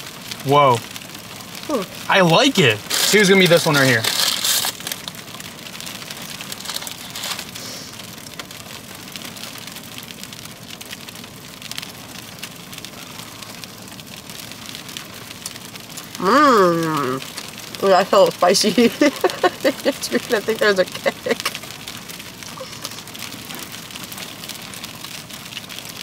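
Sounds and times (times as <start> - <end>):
faint crackle of scattered ticks: 0.0 - 26.0
paper bag rustling: 2.6 - 5.2, 6.4 - 7.9.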